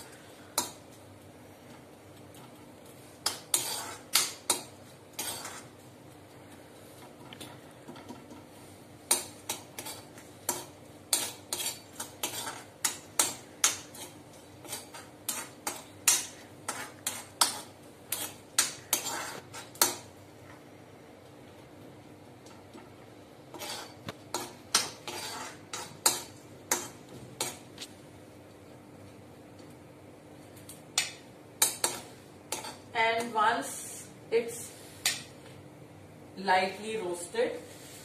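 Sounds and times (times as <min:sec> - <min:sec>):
spatula scraping metal pan: 0:03.2 - 0:04.3, 0:05.1 - 0:05.7, 0:09.5 - 0:19.9, 0:23.5 - 0:27.6.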